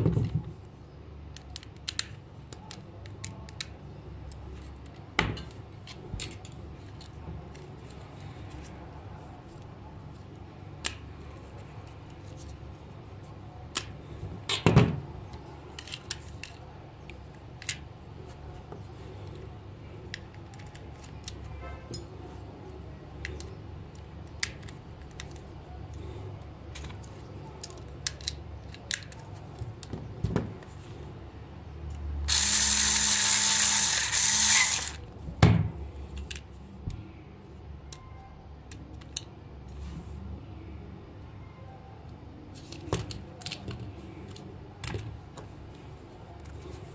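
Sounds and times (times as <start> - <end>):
plastic parts clicking: 1.3 - 3.7, 26.8 - 29.2, 32.3 - 35.0
small electric motor whirring: 32.3 - 35.0.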